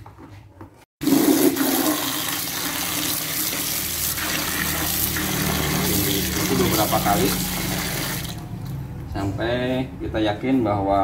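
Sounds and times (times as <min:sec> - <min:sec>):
tap water pouring into bucket: 0:01.0 - 0:08.4.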